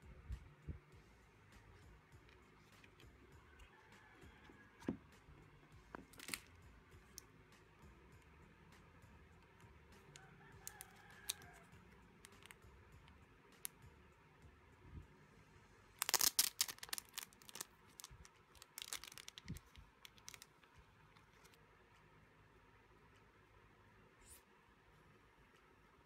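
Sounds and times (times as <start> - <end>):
plastic sleeve crinkling: 5.9 - 6.5, 16.0 - 21.6.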